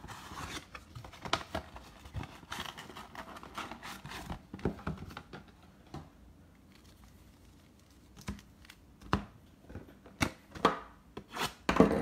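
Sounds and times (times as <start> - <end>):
cardboard and wrapper rustling: 0.0 - 5.4.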